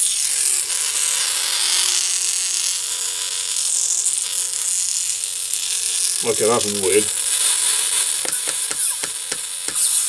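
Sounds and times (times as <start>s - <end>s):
lightsaber hum from small speaker: 3.6s - 10.0s.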